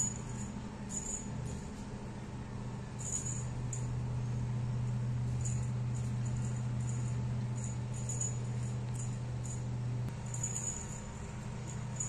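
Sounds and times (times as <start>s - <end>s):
small bell jingling: 0.0s - 1.8s, 3.0s - 4.0s, 5.3s - 12.0s
steady low hum: 0.0s - 12.0s.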